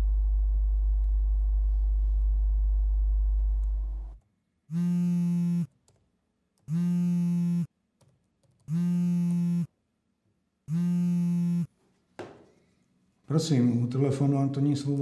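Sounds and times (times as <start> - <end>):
low hum: 0.0 - 4.2
phone buzzing on wooden desk: 4.7 - 5.7, 6.7 - 7.7, 8.7 - 9.7, 10.7 - 11.7.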